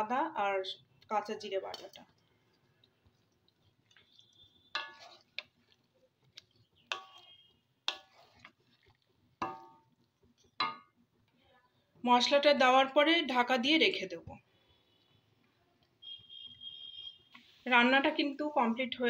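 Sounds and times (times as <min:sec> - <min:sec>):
metal spoon clinking on pan: 0:04.1 - 0:05.5, 0:06.9 - 0:08.3, 0:09.4 - 0:09.9, 0:10.6 - 0:11.0.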